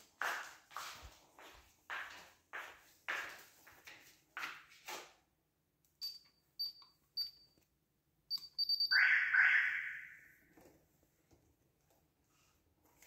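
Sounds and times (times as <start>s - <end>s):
slippered footsteps on tiles: 0.0s - 5.3s
alarm keypad beeping: 8.3s - 10.2s.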